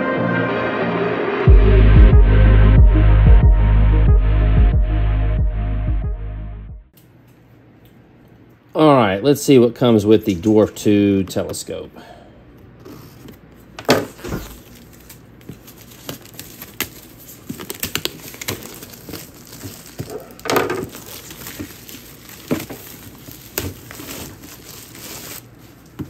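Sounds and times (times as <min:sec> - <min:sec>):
plastic shrink wrap crinkling and tearing: 0:13.9 - 0:26.0.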